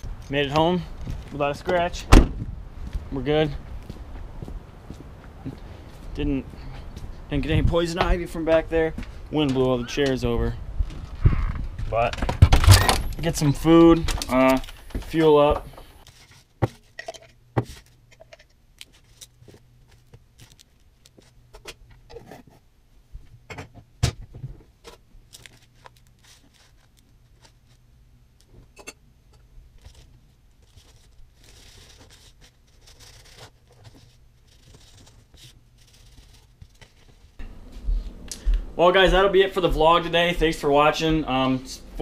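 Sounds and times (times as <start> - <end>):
faint low hum: 24.3 - 42.0.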